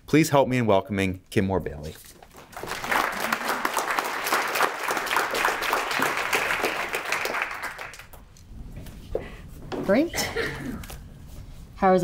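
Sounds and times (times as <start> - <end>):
audience applauding: 2.4 - 8.3.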